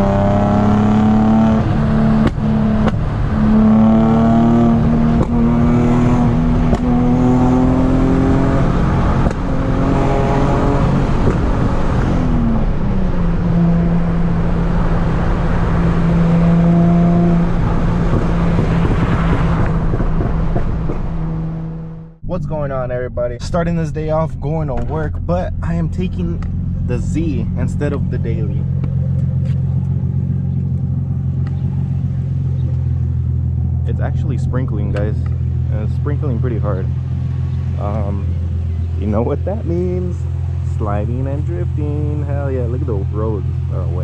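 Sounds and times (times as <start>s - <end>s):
car engine revving: 0.0s - 44.0s
road and wind noise: 0.0s - 44.0s.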